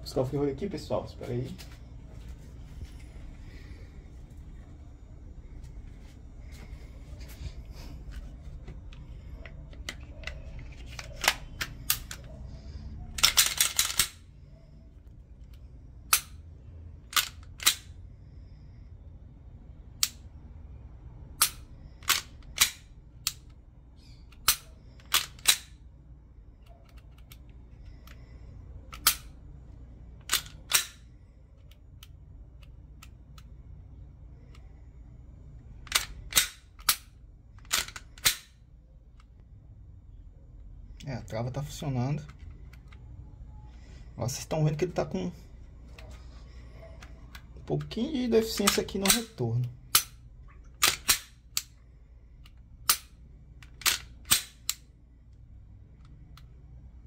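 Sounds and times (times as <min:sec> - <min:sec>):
pistol trigger and slide clicks: 0:09.7 - 0:12.4, 0:13.2 - 0:14.2, 0:16.1 - 0:16.4, 0:17.1 - 0:17.9, 0:20.0 - 0:20.2, 0:21.4 - 0:23.6, 0:24.3 - 0:25.8, 0:28.9 - 0:29.4, 0:30.2 - 0:31.0, 0:35.9 - 0:38.6, 0:48.4 - 0:50.2, 0:50.8 - 0:51.7, 0:52.4 - 0:54.9.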